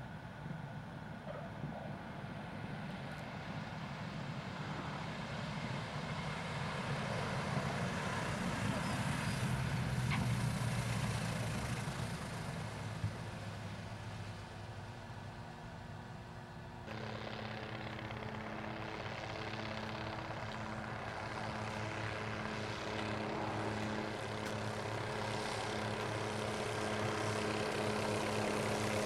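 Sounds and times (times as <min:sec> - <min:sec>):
propeller plane engines droning: 0:00.0 - 0:29.0.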